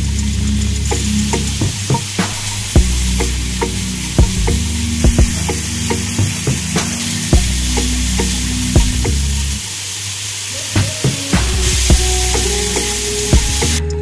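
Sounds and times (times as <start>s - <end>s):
vegetables sizzling in oil: 5.4s - 13.4s.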